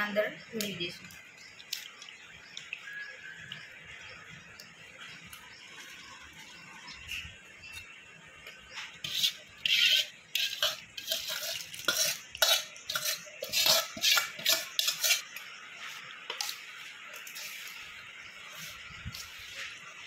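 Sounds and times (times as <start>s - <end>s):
spoon scraping steel bowl: 9.0s - 16.6s.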